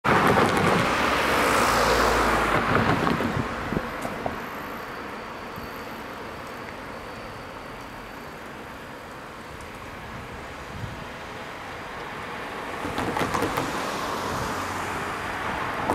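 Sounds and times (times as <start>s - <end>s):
car tyre and road noise: 0.0s - 15.9s
distant traffic hum: 0.1s - 15.9s.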